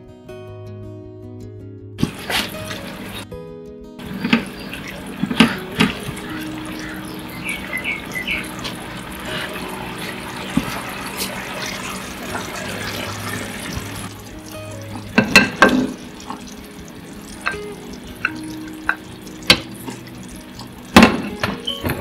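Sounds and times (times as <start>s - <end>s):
spatula knocking and scraping pan: 4.0s - 6.2s, 14.9s - 16.4s
sauce bubbling in a pan: 4.0s - 21.8s.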